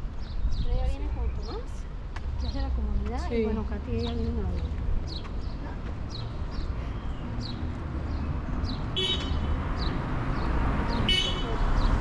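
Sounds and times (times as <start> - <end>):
birds chirping: 0.0 - 12.0
city traffic rumble: 0.0 - 12.0.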